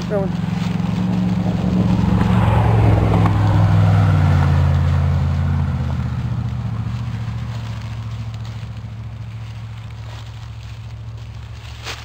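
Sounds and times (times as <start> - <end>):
vehicle passing by: 0.0 - 12.0.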